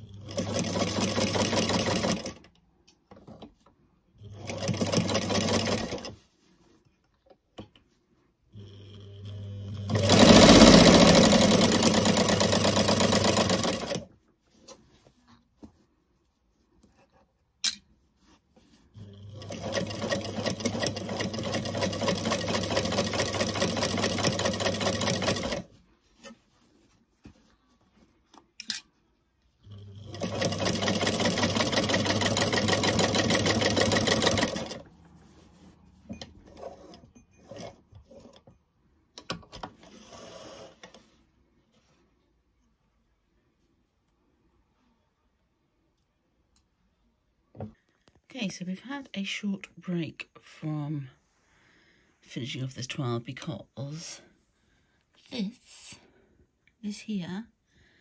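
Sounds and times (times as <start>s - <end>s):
sewing machine stitching: 0.0s - 2.6s, 4.2s - 6.2s, 8.6s - 14.1s, 19.0s - 26.4s, 29.7s - 35.0s, 36.2s - 38.4s, 39.2s - 41.0s.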